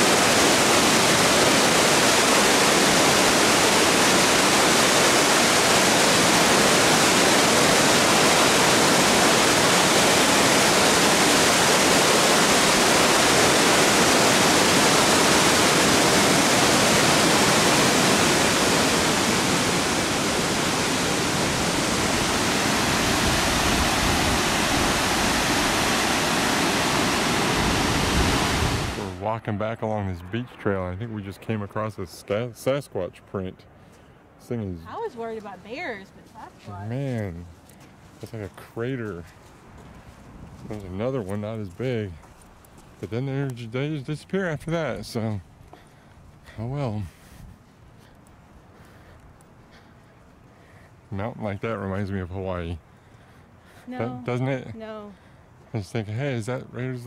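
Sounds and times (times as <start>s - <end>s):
waterfall rushing: 0.0s - 29.3s
low rumble: 27.4s - 33.7s.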